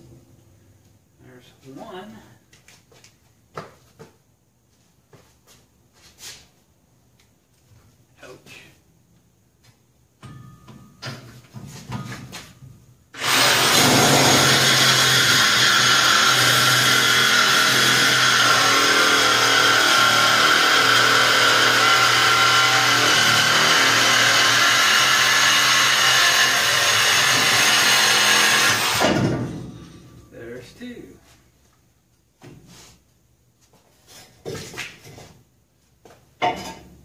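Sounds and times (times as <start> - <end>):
power tool cutting metal: 13.2 - 29.2.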